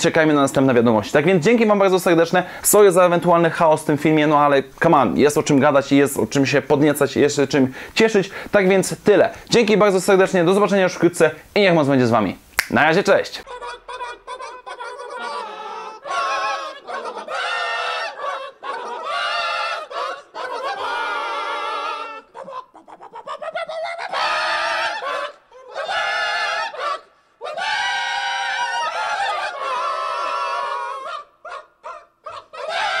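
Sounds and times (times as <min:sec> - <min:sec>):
wavering voice-like calls: 0:13.4 - 0:33.0.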